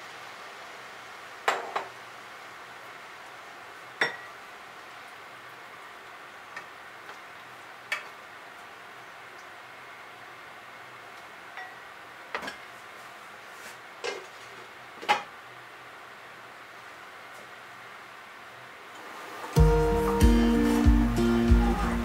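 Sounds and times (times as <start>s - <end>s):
faint steady hiss: 0.0s - 22.0s
dishes and utensils clinking: 4.0s - 4.3s.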